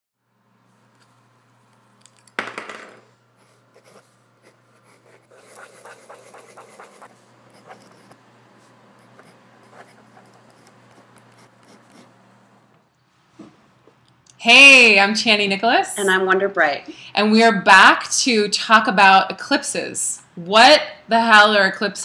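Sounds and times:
pen scratching on paper: 3.4 - 12.2.

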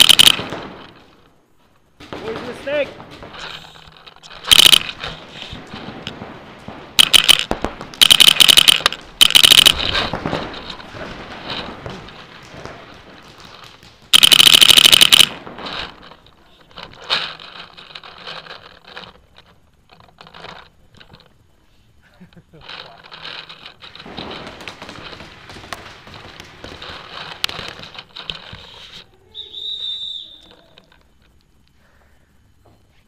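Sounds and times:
quiet scattered pops: 0.0 - 32.9
paintball marker firing bursts: 4.4 - 5.5, 7.0 - 15.4.

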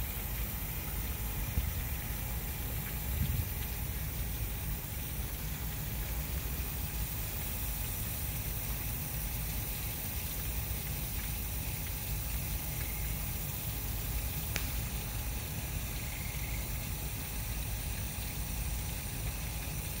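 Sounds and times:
waterfall pouring over rocks: 0.0 - 20.0.

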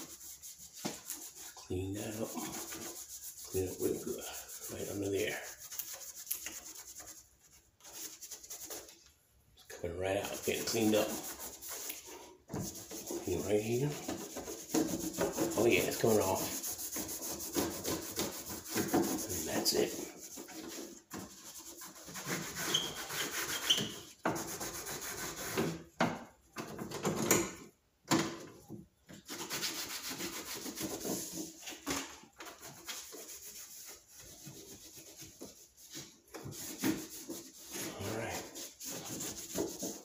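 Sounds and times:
cloth rubbing on plastic: 0.0 - 9.0, 10.2 - 23.8, 32.5 - 40.0.

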